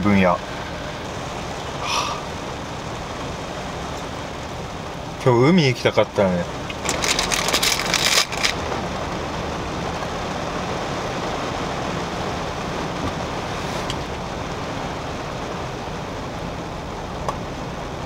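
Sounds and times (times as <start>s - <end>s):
car cabin background noise: 0.0s - 18.0s
plastic wrapper crinkling: 6.7s - 8.6s.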